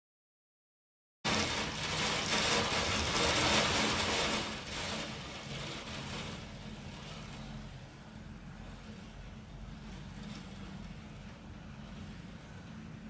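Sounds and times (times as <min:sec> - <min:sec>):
hail hitting a window: 0:01.3 - 0:07.6
low steady hum: 0:01.3 - 0:13.0.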